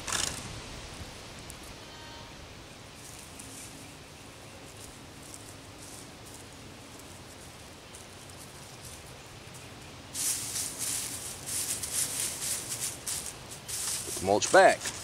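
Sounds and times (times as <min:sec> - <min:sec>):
hands scraping wood-chip mulch: 0:10.2 - 0:15.0.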